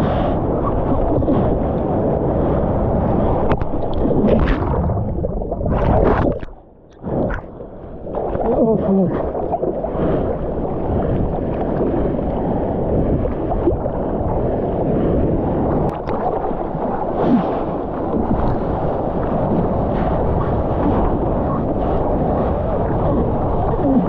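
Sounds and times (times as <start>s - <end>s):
seawater rushing and splashing: 0.0s - 24.0s
wind on microphone: 0.0s - 24.0s.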